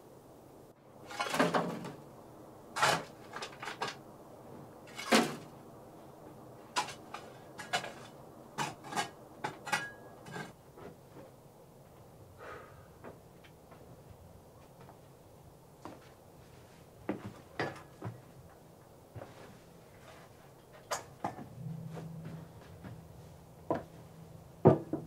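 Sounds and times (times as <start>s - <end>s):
hard objects scraping: 1.0s - 2.0s, 2.8s - 4.0s, 4.8s - 5.5s, 6.6s - 10.6s
hard objects knocking: 24.6s - 25.0s.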